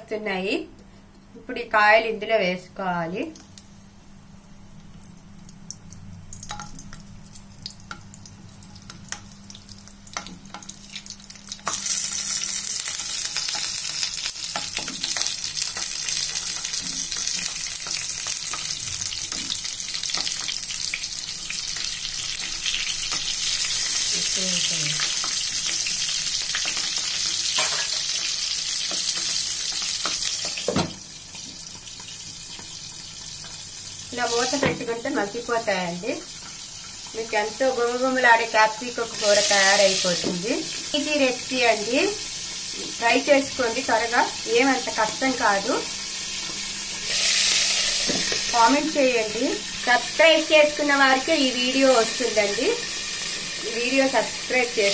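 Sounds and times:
oil sizzling in pan: 3.4 - 54.9
peppers knocking into pan: 6.4 - 7.0, 30.0 - 31.1.

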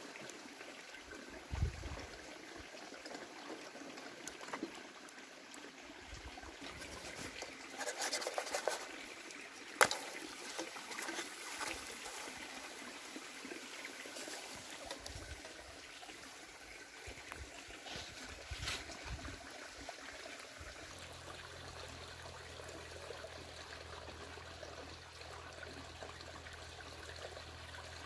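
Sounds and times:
clicks and scrapes: 6.6 - 9.2, 9.8 - 12.6.

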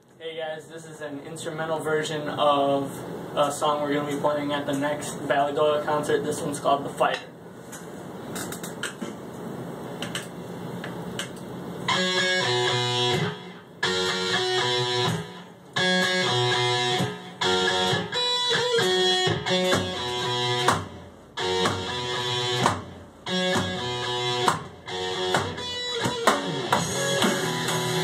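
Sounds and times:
instrumental rock music: 11.9 - 28.0.

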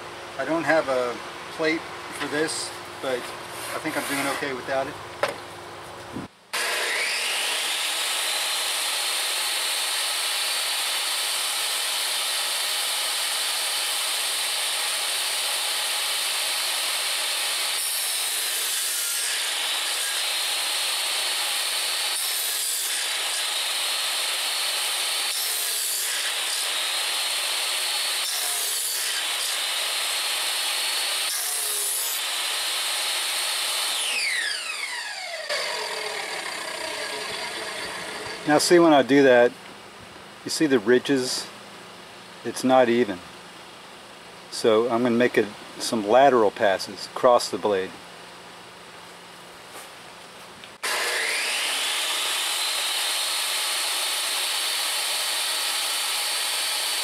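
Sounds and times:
saw cutting through boards: 3.7 - 4.6, 6.6 - 39.0, 50.8 - 57.0
table saw motor whining: 6.6 - 17.0, 17.6 - 38.7, 50.8 - 57.0.

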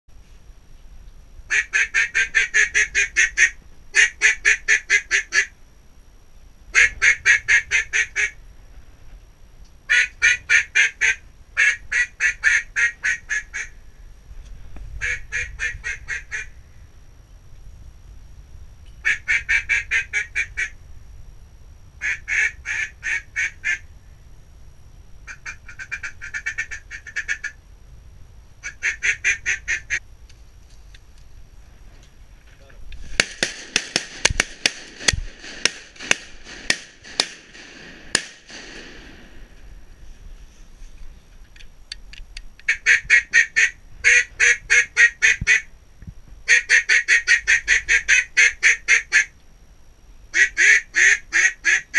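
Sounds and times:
duck call quacks: 1.5 - 5.5, 6.8 - 8.4, 9.9 - 13.7, 15.0 - 16.5, 19.0 - 20.7, 22.0 - 23.8, 25.3 - 27.6, 28.6 - 30.0, 42.7 - 45.7, 46.5 - 49.3, 50.3 - 51.9.

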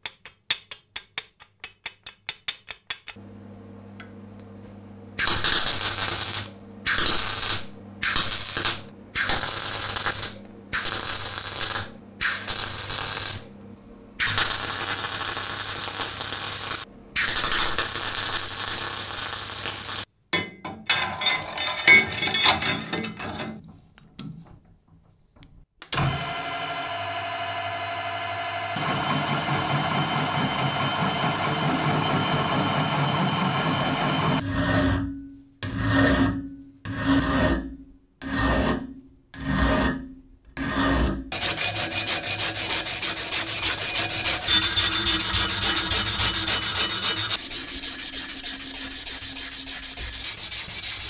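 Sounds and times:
welder hum: 4.0 - 13.6, 14.2 - 20.1, 41.3 - 51.0
welder arcing: 5.2 - 13.5, 14.2 - 20.1, 41.3 - 51.0.

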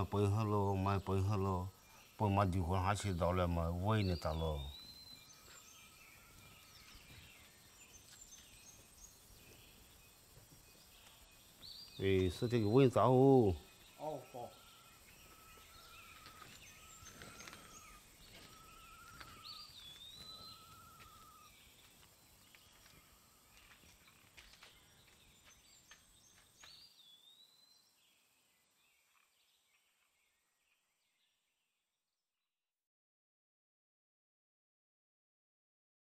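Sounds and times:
birds chirping: 0.0 - 31.8
faint rural ambience: 0.0 - 32.4
bird whistled call: 14.0 - 21.5.

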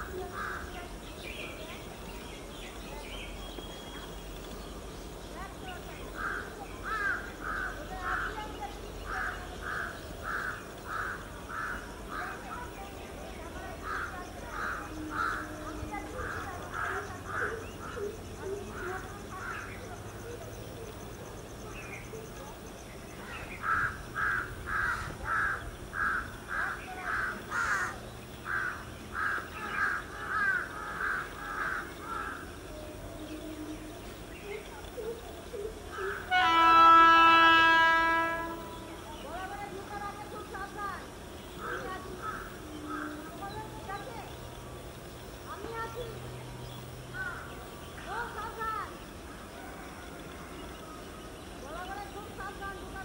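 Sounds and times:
crow cawing: 6.2 - 8.4, 9.1 - 12.4, 13.8 - 18.0, 23.6 - 32.5, 41.6 - 43.2, 47.2 - 47.5.

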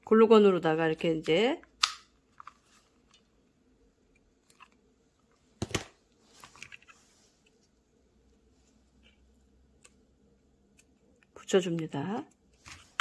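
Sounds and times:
soft rustle: 2.4 - 3.4, 4.4 - 11.3, 12.3 - 13.0.

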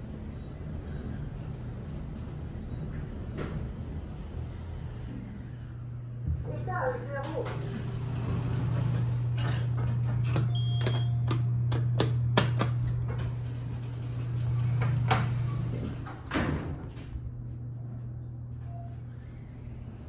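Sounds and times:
elevator doors clicking and knocking: 0.0 - 5.0, 6.3 - 17.3
steady low hum: 0.0 - 20.0.

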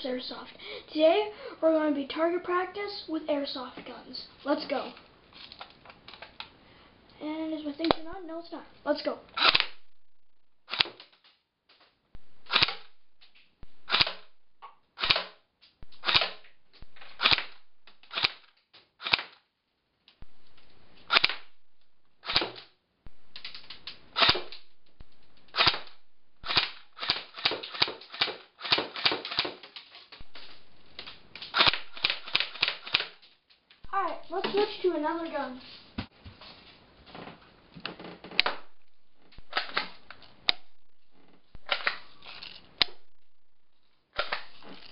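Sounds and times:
airsoft gun shots cracking: 12.4 - 13.0, 13.7 - 14.4, 15.0 - 16.4, 17.1 - 18.4, 21.1 - 21.6, 31.4 - 33.2.

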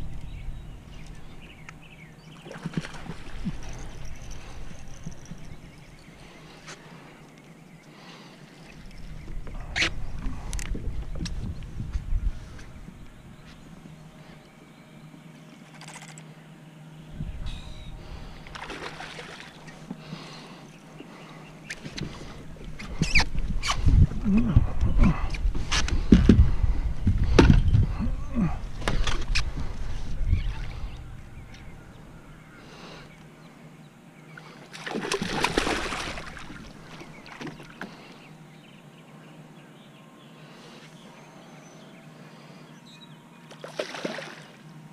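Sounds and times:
fish thrashing and splashing: 2.4 - 4.6, 18.5 - 19.8, 34.7 - 37.8
low rumbles on microphone: 8.9 - 14.0, 17.0 - 18.4, 22.1 - 32.2
water splashing against kayak: 34.7 - 37.8.

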